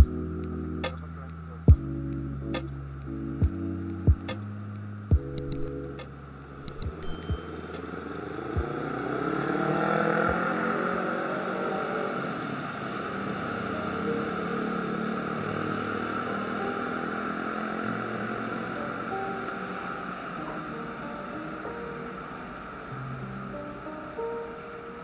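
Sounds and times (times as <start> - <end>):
light traffic drone: 0.0 - 25.0
motorcycle engines passing: 6.4 - 25.0.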